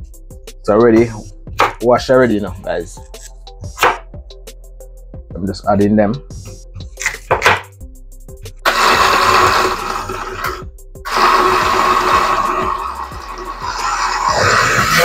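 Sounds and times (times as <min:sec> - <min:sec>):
blender running: 0:08.7 - 0:15.0.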